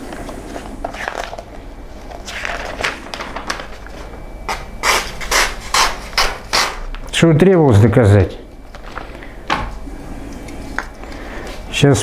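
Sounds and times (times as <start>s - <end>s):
paper rustling: 2.0s - 4.2s.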